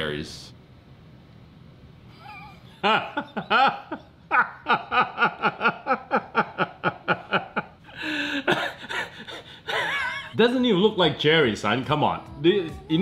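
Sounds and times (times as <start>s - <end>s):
men laughing hard: 2.2s - 10.4s.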